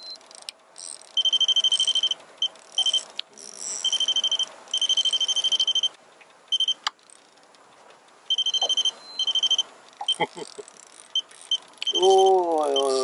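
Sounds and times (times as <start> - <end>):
fishing reel drag clicking: 0.2 - 4.9, 9.9 - 12.0.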